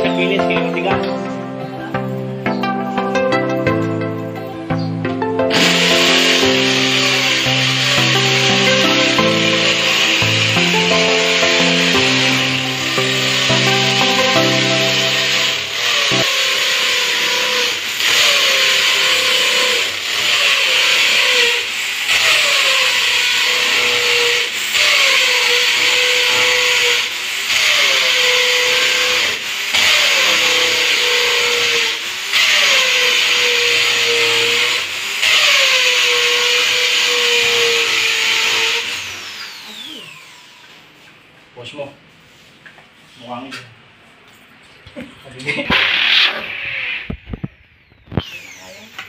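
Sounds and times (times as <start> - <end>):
electric drill boring into cement: 5.5 - 40.8, 45.7 - 49.0.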